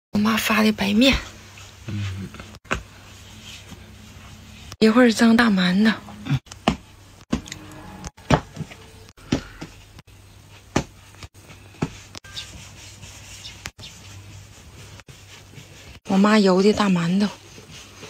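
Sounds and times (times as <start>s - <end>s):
dough knocks and thumps on board: 10.7s - 11.0s.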